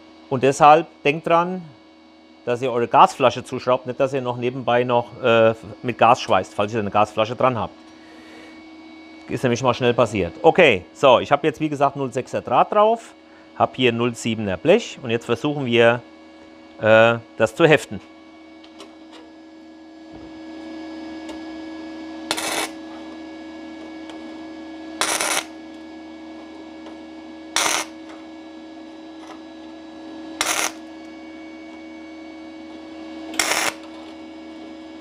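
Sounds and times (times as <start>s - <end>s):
welder hum: 18.6s - 35.0s
welding arc bursts: 22.3s - 22.8s, 25.0s - 25.5s, 27.6s - 28.0s, 30.4s - 30.8s, 33.4s - 33.8s.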